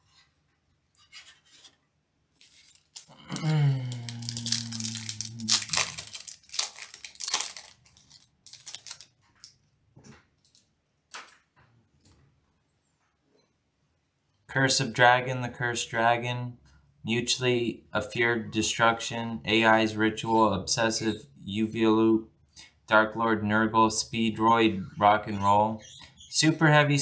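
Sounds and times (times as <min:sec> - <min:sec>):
foil wrapper tearing and crinkling: 0:02.4 - 0:09.5
man humming low: 0:03.2 - 0:06.0.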